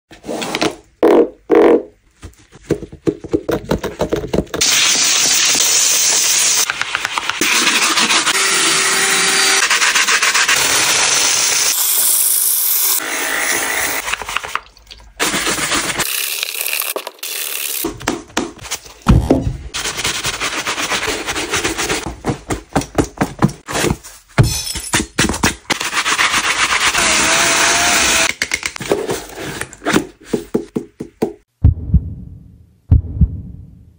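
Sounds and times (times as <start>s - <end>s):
cordless drill spinning brush: 7.4s - 12.0s, 26.8s - 28.3s.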